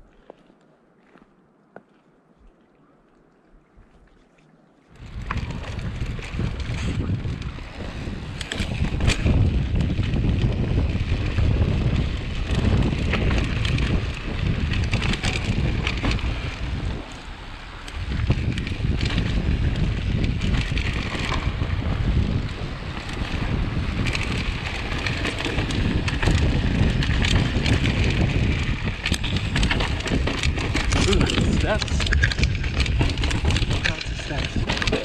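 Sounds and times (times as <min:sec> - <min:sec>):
low tyre rumble: 0:04.9 - 0:35.0
wind buffeting microphone: 0:04.9 - 0:35.0
bike clicks and rattles: 0:05.0 - 0:35.0.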